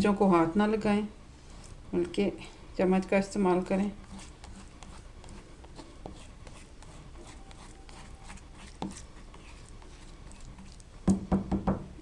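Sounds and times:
spoon scraping stone mortar: 0:03.6 - 0:10.9.

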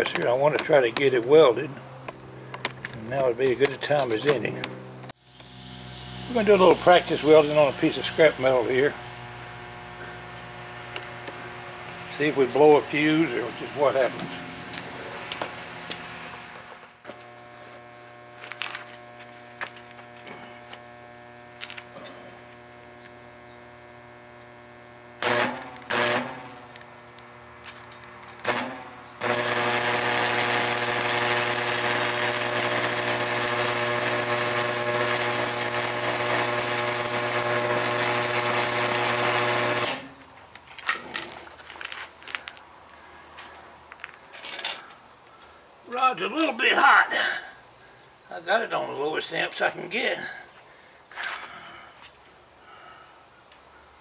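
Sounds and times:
welding arc strikes: 0:00.0 - 0:40.4
crackling sizzling welding arc: 0:00.0 - 0:47.0
welder humming: 0:00.0 - 0:50.1.

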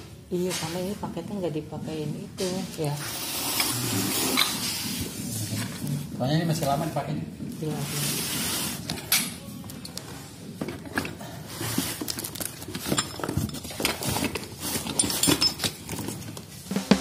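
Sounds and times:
cardboard rustling: 0:10.1 - 0:17.0.

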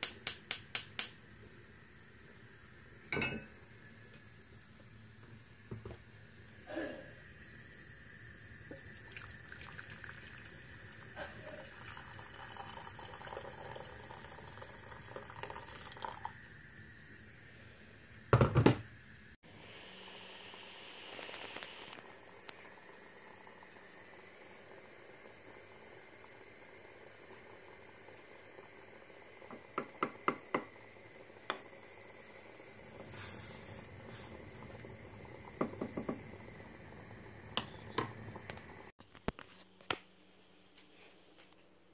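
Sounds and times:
water heating hiss: 0:00.0 - 0:39.0
water bubbling at the boil: 0:08.6 - 0:16.4, 0:22.0 - 0:38.9.

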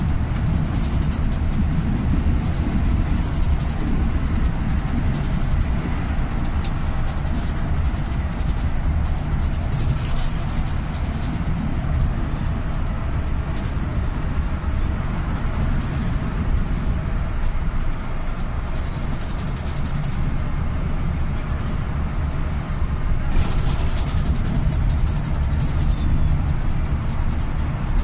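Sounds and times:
vehicle road and engine rumble: 0:00.0 - 0:28.0.

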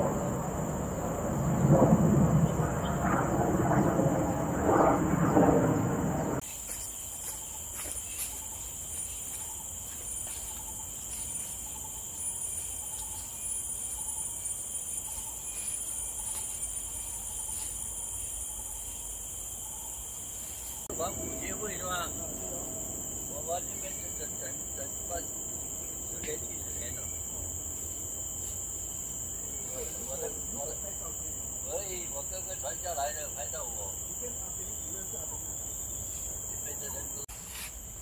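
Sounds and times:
loud low rumble: 0:00.0 - 0:06.4, 0:20.9 - 0:28.1
insects droning: 0:00.0 - 0:38.0.

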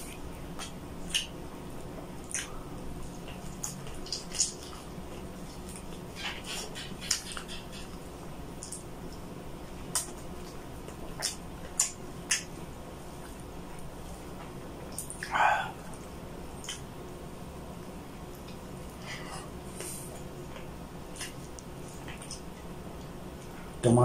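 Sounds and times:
chewing: 0:00.0 - 0:08.0, 0:08.6 - 0:16.9, 0:18.2 - 0:23.7
wet mouth smacks while eating: 0:02.2 - 0:02.6, 0:11.2 - 0:12.5, 0:16.6 - 0:16.8, 0:20.5 - 0:22.4.

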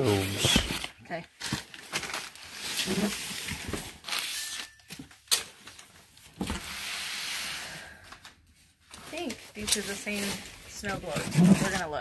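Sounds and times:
cardboard boxes rustling and scraping: 0:00.0 - 0:04.2, 0:09.0 - 0:12.0.

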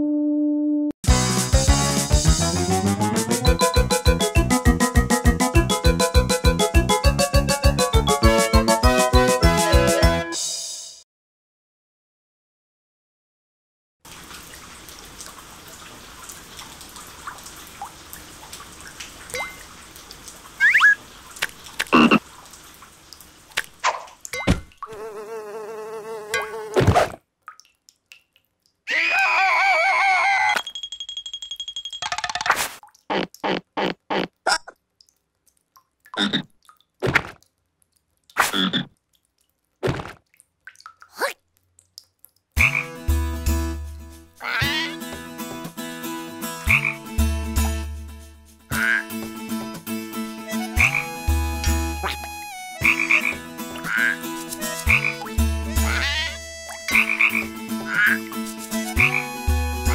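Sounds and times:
water trickling in a storm drain: 0:14.1 - 0:25.0, 0:27.2 - 0:28.9, 0:34.3 - 0:42.8
water drops plinking: 0:19.3 - 0:19.7, 0:24.3 - 0:24.9
cartoon frog croaking: 0:21.9 - 0:22.2, 0:36.2 - 0:36.5, 0:44.4 - 0:45.0, 0:48.7 - 0:49.2, 0:52.0 - 0:54.2, 0:54.9 - 0:58.3.

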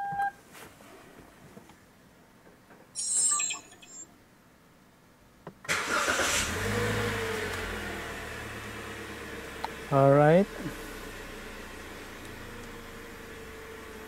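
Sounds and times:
short high-pitched sound: 0:03.0 - 0:04.0
car engine starting and idling: 0:05.7 - 0:14.0.

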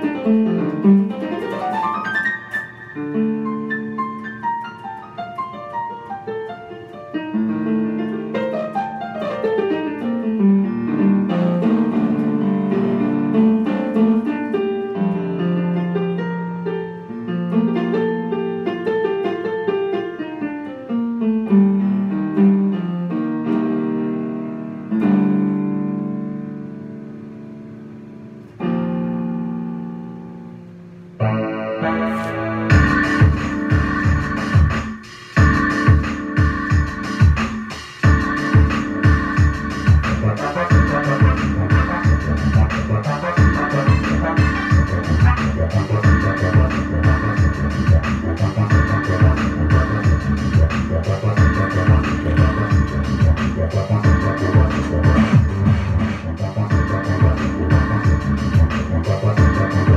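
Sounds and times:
electric piano chords: 0:00.0 - 0:59.9
drum beat: 0:32.7 - 0:59.9.

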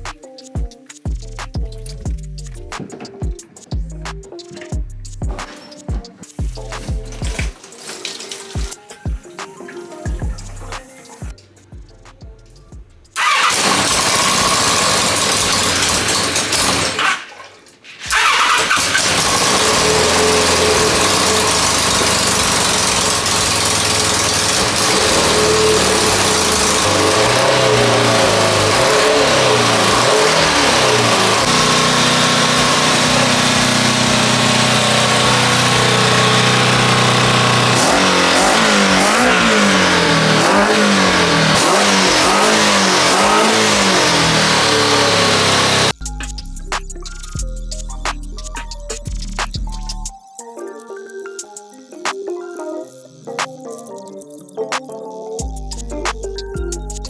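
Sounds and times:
motorcycle engine revving: 0:13.2 - 0:17.4, 0:18.0 - 0:46.0.

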